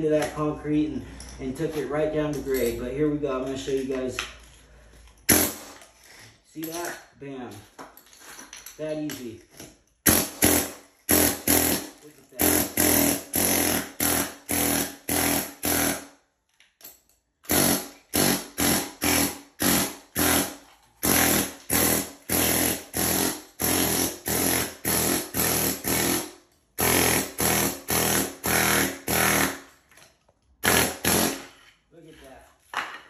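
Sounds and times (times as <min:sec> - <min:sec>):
pneumatic air hammer chipping concrete: 0:05.3 - 0:05.8, 0:10.0 - 0:16.1, 0:17.4 - 0:29.7, 0:30.6 - 0:31.5.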